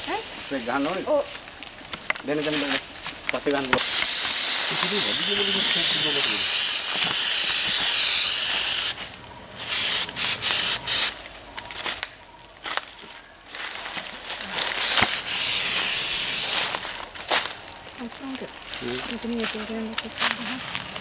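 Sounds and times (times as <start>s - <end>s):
aerosol spray hissing: 3.8s - 9.0s, 9.6s - 11.1s, 14.8s - 16.8s.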